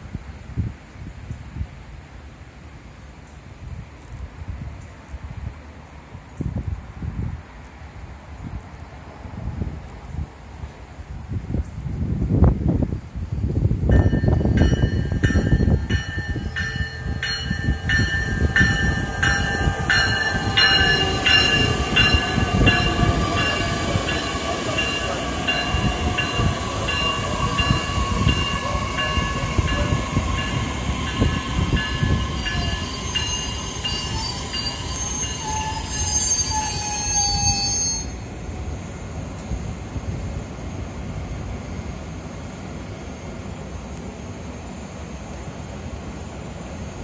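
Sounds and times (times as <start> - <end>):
electric train whine sliding down: 13.9 - 42.5
bell ringing: 14.0 - 38.3
high-pitched brake squeal: 16.4 - 38.3.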